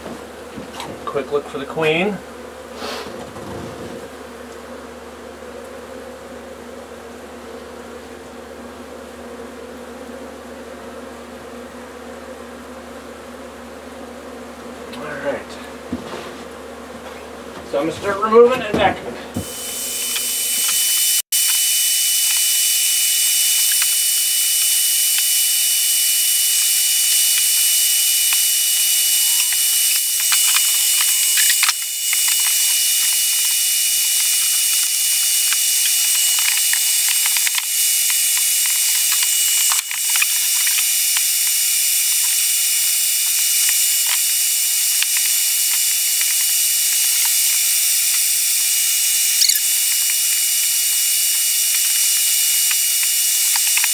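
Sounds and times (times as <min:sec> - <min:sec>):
vacuum motor whine and suction: 0:19.4 - 0:53.9.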